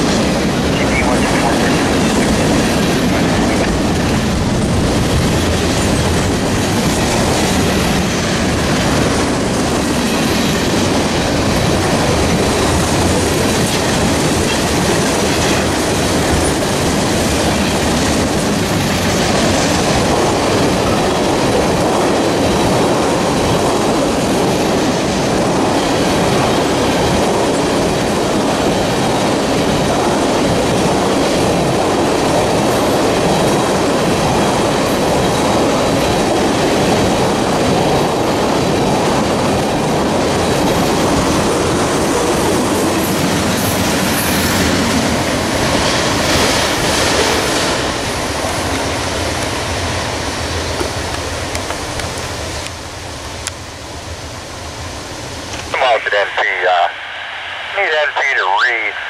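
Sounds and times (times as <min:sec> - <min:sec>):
train wheels on rails: 0:00.0 - 0:55.8.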